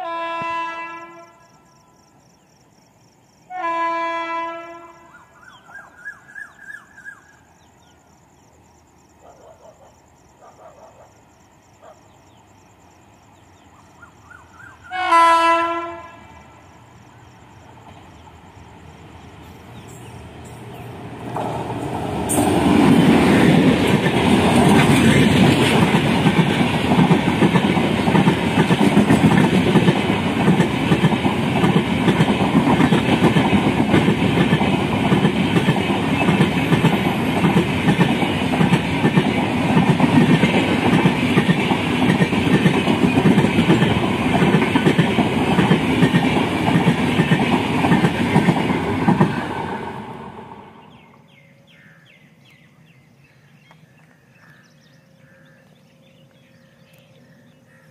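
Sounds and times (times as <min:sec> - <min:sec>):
locomotive horn blasts: 0:00.0 - 0:01.5, 0:03.5 - 0:05.1, 0:14.9 - 0:16.4
train passing at speed: 0:10.0 - 0:53.6.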